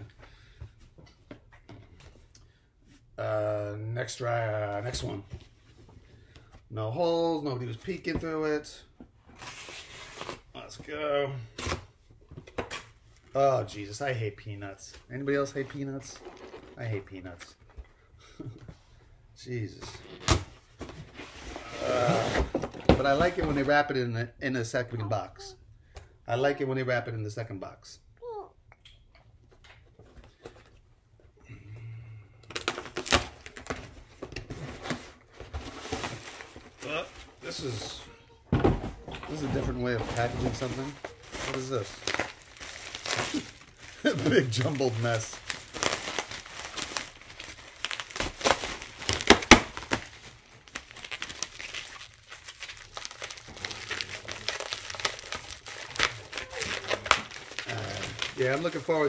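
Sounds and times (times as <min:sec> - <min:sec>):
cardboard ripping and crackling: 0:32.5 - 0:33.8, 0:39.4 - 0:59.0
plastic packaging crinkling: 0:39.8 - 0:59.0.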